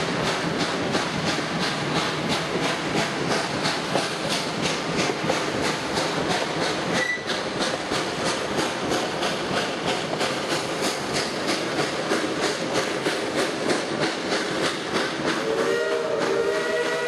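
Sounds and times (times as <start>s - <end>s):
steam locomotive exhaust beating: 0.0s - 17.0s
multi-note steam whistle: 7.0s - 7.4s, 15.4s - 17.0s.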